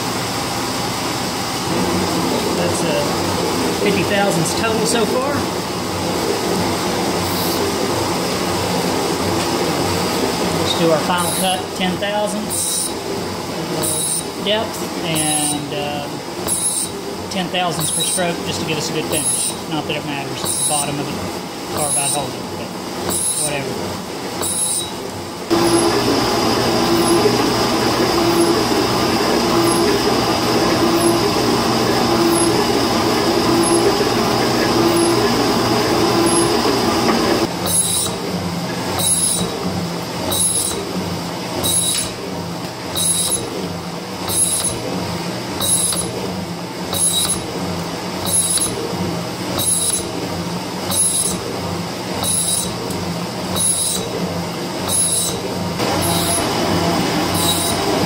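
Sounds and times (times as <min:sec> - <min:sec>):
metal shaper cutting strokes: 0:12.5 - 0:13.0, 0:13.8 - 0:14.3, 0:16.4 - 0:17.0, 0:19.1 - 0:19.6, 0:20.4 - 0:20.9, 0:21.8 - 0:22.3, 0:23.1 - 0:23.6, 0:24.4 - 0:38.2, 0:39.0 - 0:39.5, 0:40.3 - 0:40.8, 0:41.6 - 0:42.2, 0:43.0 - 0:43.5, 0:44.3 - 0:44.8, 0:45.6 - 0:46.1, 0:46.9 - 0:47.4, 0:49.6 - 0:50.1, 0:50.9 - 0:51.4, 0:52.2 - 0:52.8, 0:53.6 - 0:54.1, 0:54.9 - 0:58.0.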